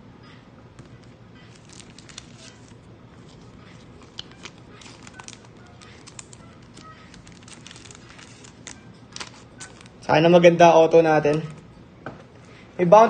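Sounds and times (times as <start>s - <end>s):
trading cards clicking and rustling: 0.8s - 10.1s
wrappers crinkling: 1.0s - 10.2s.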